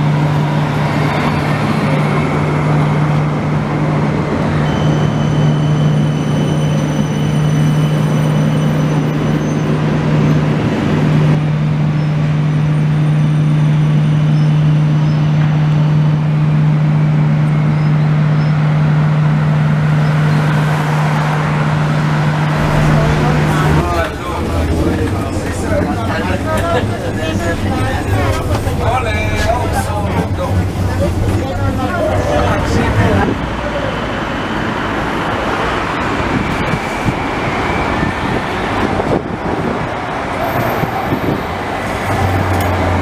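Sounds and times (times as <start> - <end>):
street traffic: 0.0 - 43.0
tram noise: 0.0 - 43.0.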